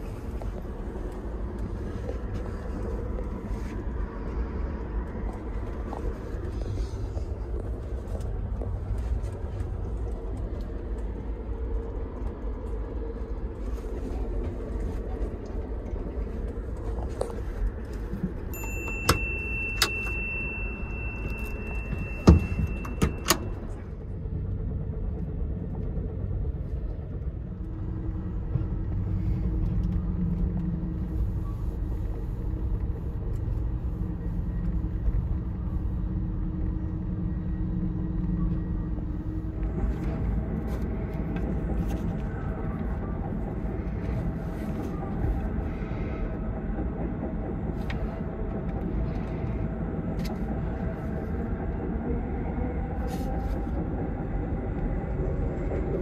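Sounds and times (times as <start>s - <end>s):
train ride rumble: 0.0s - 56.0s
high thin tone: 18.5s - 23.8s.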